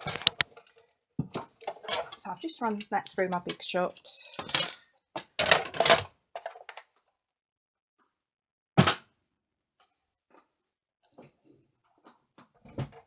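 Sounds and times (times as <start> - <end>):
plastic plates clicking and clattering: 0.0 - 6.9.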